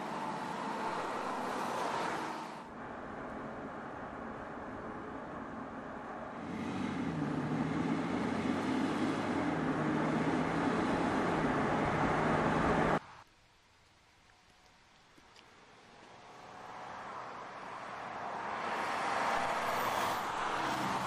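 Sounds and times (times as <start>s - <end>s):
car engine driving: 0.0s - 13.0s
tyre and road noise: 0.0s - 21.0s.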